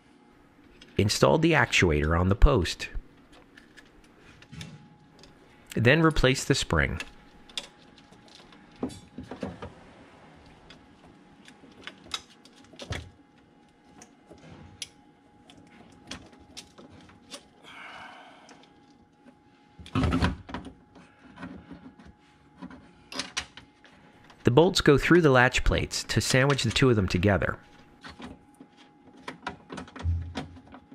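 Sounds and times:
faint steady hum: 0:00.0 - 0:30.9
metal and plastic parts clicking: 0:03.3 - 0:05.4.

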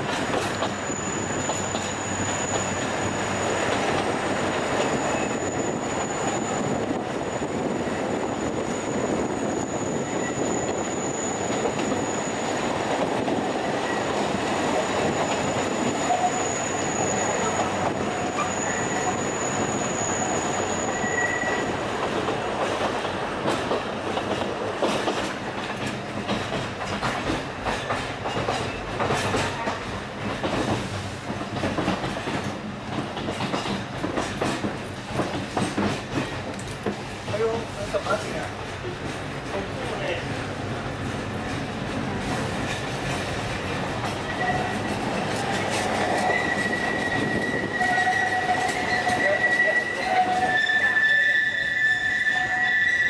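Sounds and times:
train wheels rumbling on rail: 0:00.0 - 0:53.0
high wheel squeal: 0:00.4 - 0:21.9, 0:44.0 - 0:53.0
wheels clicking over rail joints: 0:22.0 - 0:37.6.

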